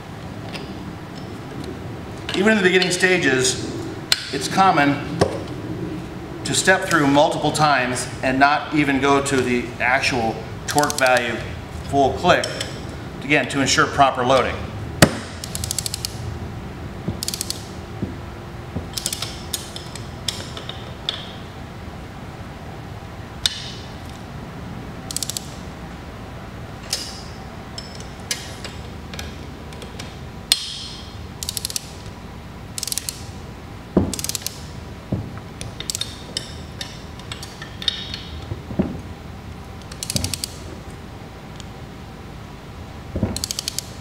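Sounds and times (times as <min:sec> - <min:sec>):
sharp wrench clicks: 0:10.7 - 0:11.3, 0:15.4 - 0:16.2, 0:17.2 - 0:17.7, 0:18.9 - 0:21.3, 0:25.1 - 0:25.6, 0:26.8 - 0:32.1, 0:32.8 - 0:33.4, 0:34.1 - 0:34.7, 0:35.6 - 0:38.3, 0:39.8 - 0:40.6, 0:43.4 - 0:44.0
torque wrench ratchet clicks: 0:10.7 - 0:11.3, 0:15.4 - 0:16.2, 0:17.2 - 0:17.7, 0:18.9 - 0:20.4, 0:25.1 - 0:25.6, 0:31.4 - 0:32.0, 0:32.8 - 0:33.3, 0:34.1 - 0:34.6, 0:39.8 - 0:40.6, 0:43.4 - 0:44.0.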